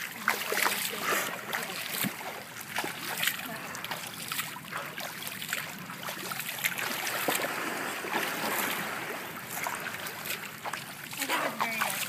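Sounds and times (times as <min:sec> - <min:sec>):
pool water splashing: 0:00.0 - 0:12.0.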